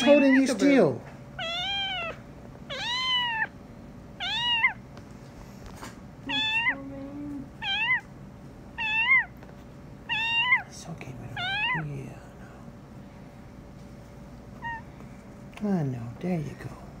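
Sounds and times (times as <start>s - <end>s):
kitten meowing: 0.0s - 0.6s, 1.4s - 3.6s, 4.2s - 4.8s, 6.3s - 6.9s, 7.6s - 8.1s, 8.8s - 9.4s, 10.1s - 10.7s, 11.4s - 11.9s, 14.6s - 14.9s.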